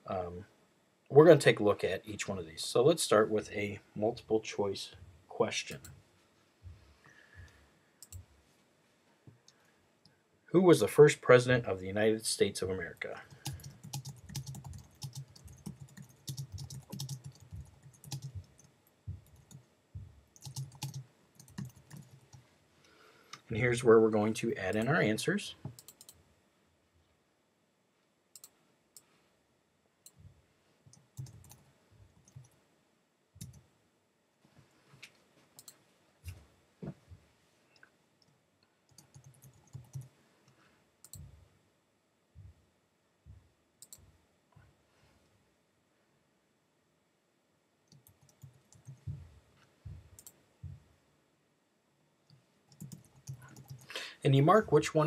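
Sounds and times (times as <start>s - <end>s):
keyboard typing: 13.2s - 19.7s, 20.3s - 22.4s, 30.9s - 31.6s, 32.2s - 32.6s, 33.4s - 33.6s, 38.9s - 40.1s, 47.9s - 49.1s, 52.7s - 53.9s.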